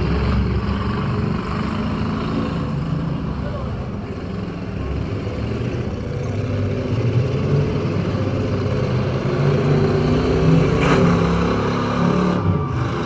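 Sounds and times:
other car engines: 0.0s - 13.0s
car engine revving: 4.2s - 13.0s.

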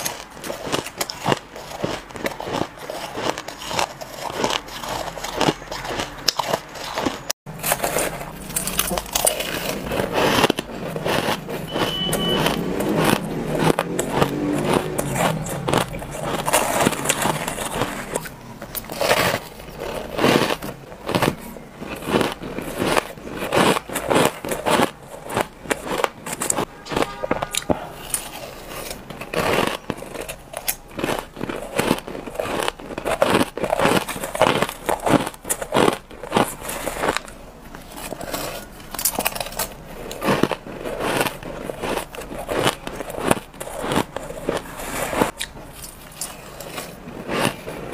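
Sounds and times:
ice being chewed: 0.0s - 47.9s.

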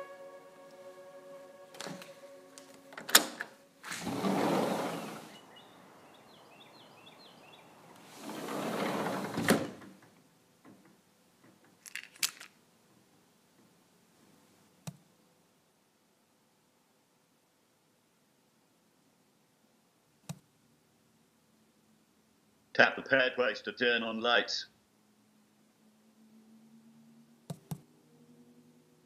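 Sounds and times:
sliding glass door rolling: 3.0s - 5.4s, 8.0s - 10.1s
faint birdsong: 4.5s - 8.1s.

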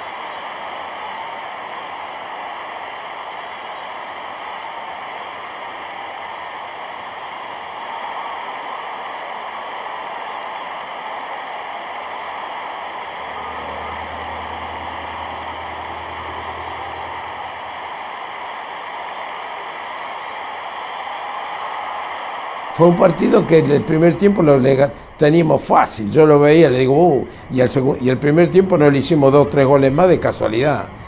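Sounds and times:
old soundtrack hiss: 0.0s - 31.0s
low hum: 12.3s - 19.9s, 22.7s - 31.0s.

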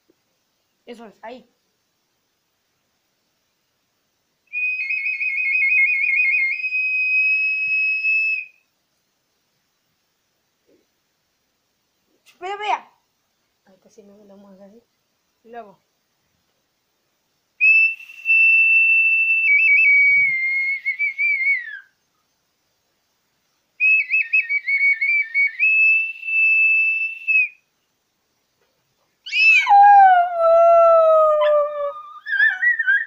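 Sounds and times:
whistle blasts: 4.5s - 8.6s, 17.6s - 21.9s, 23.8s - 27.6s
small dog howling: 29.3s - 33.0s.

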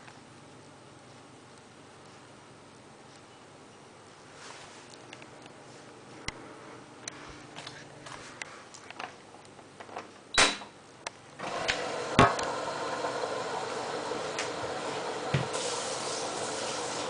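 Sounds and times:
washing machine hiss and hum: 9.3s - 17.0s.

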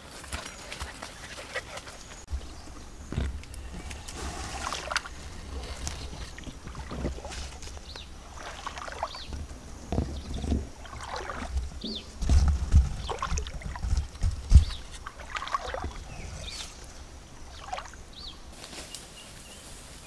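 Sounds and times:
muddy water sloshing and splashing: 0.0s - 18.6s.

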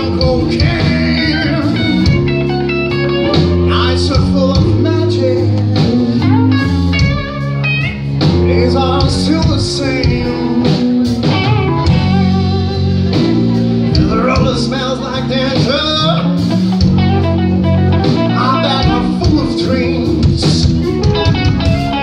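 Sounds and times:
person singing: 0.0s - 6.8s, 8.2s - 16.6s, 18.0s - 21.0s
drum kit: 0.0s - 22.0s
electric bass: 0.0s - 22.0s
electric guitars: 0.0s - 22.0s.

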